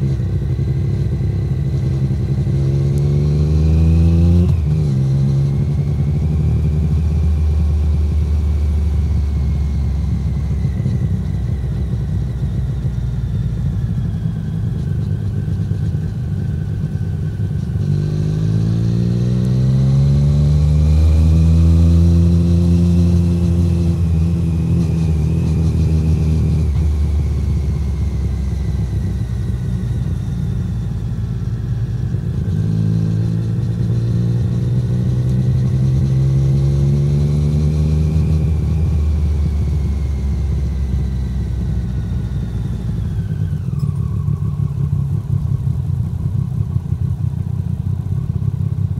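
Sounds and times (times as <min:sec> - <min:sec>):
motorcycle engine revving: 0:00.0 - 0:48.9.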